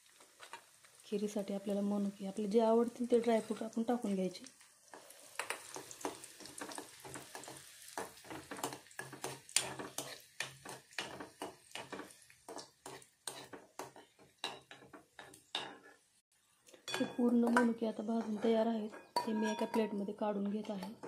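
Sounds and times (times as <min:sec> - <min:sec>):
frying sizzle: 0:00.0 - 0:16.2
metal spoon scraping a metal pan: 0:05.0 - 0:16.0, 0:16.9 - 0:21.0.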